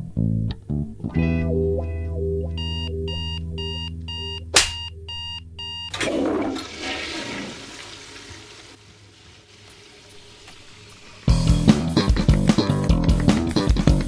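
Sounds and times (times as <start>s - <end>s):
alarm clock beeping: 2.6s - 6.0s
toilet flushing: 5.9s - 11.6s.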